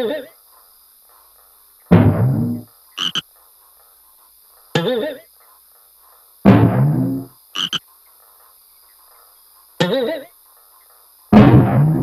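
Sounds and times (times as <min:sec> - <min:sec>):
frog croaking: 0:01.9 - 0:03.3, 0:06.4 - 0:08.2, 0:09.8 - 0:10.4
high chirps: 0:02.5 - 0:03.2, 0:07.6 - 0:07.8.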